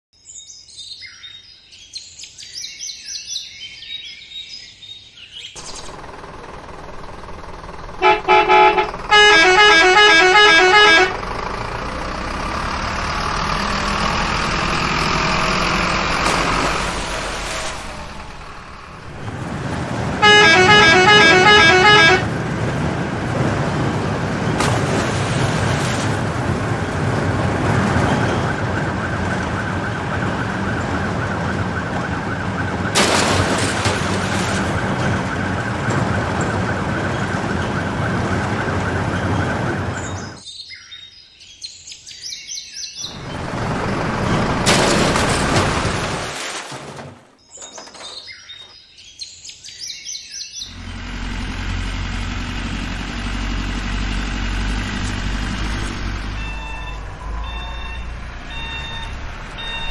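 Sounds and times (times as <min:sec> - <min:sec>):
truck engine running: 0:05.6 - 0:40.4, 0:43.1 - 0:46.4, 0:50.7 - 0:59.9
truck horn honking: 0:07.6 - 0:16.2, 0:20.1 - 0:22.8, 0:52.6 - 0:59.9
birds chirping: 0:34.7 - 0:44.6, 0:47.4 - 0:51.6.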